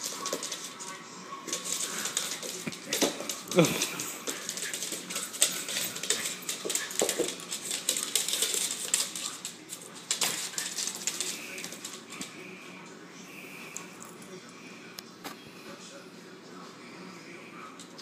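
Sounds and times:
dog claws scrabbling on wood floor: 1.5 - 12.3.

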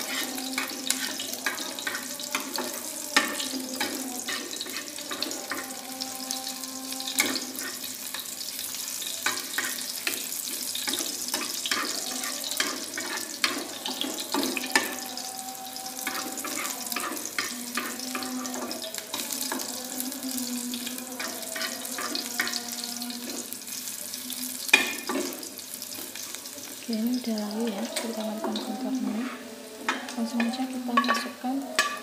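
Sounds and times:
utensil scraping a pan: 0.0 - 5.9, 16.0 - 19.6, 28.0 - 32.0
food sizzling in oil: 0.0 - 32.0.

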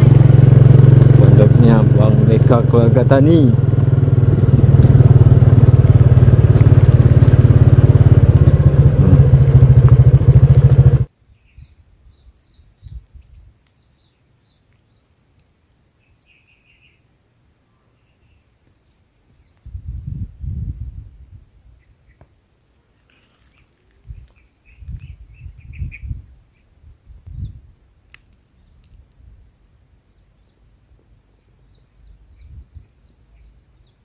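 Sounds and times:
motorcycle engine running: 0.0 - 11.1
small bird chirps: 11.1 - 19.8, 21.7 - 29.0, 30.3 - 34.0
high insect trill: 13.8 - 34.0.

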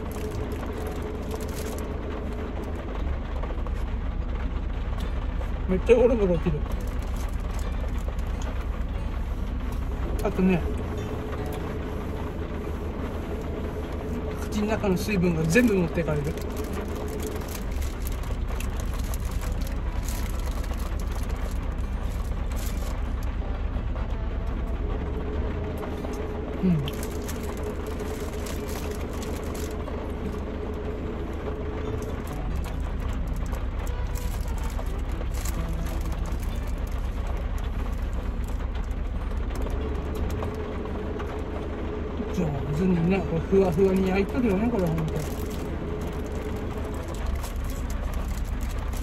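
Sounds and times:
plastic bag crinkling: 0.0 - 2.0, 6.7 - 8.2, 15.4 - 23.2, 26.8 - 29.9, 32.6 - 37.4, 43.8 - 49.0
low rumble inside vehicle: 0.0 - 49.0
rain pattering on roof: 0.0 - 49.0
steady hum: 0.0 - 49.0.

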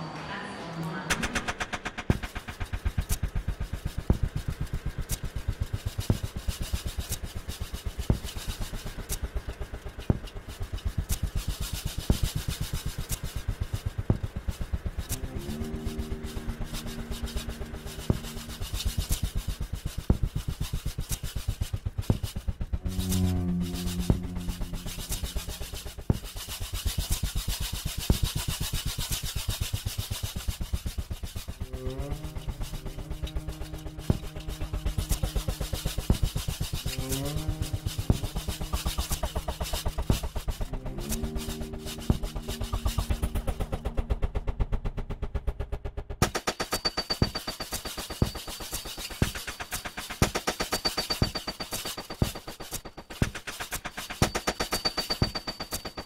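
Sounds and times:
loud percussive hits: 1.1 - 4.4
rapid light drum hits: 1.1 - 15.4, 16.8 - 23.3
percussive soundtrack music: 1.1 - 56.0
low held tone rising in pitch: 15.0 - 19.8, 22.7 - 26.1, 31.6 - 46.1.

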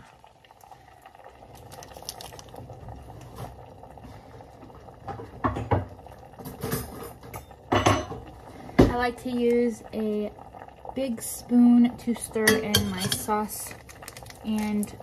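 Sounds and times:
pot bubbling: 0.0 - 15.0
pots and utensils clinking: 5.1 - 8.4, 12.4 - 13.5.

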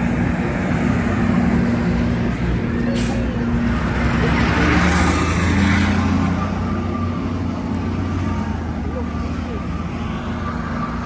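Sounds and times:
diesel bus engine humming: 0.0 - 11.0
vehicle passing: 0.0 - 11.0.

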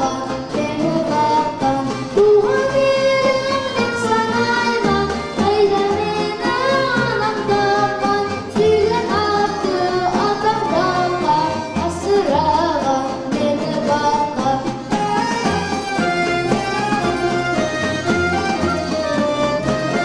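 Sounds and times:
boy singing into a microphone: 0.0 - 15.2
accordion: 0.0 - 20.0
plucked strings: 0.0 - 20.0.

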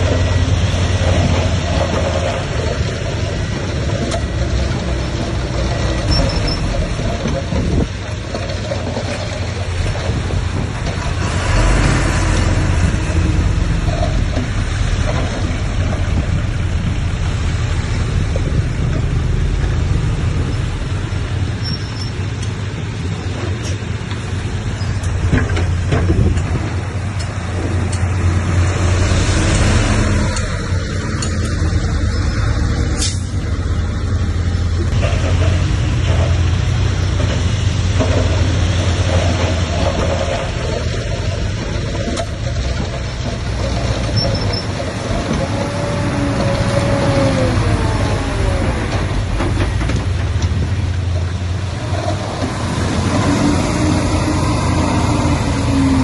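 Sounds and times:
heavy diesel machinery rumbling: 0.0 - 56.0.

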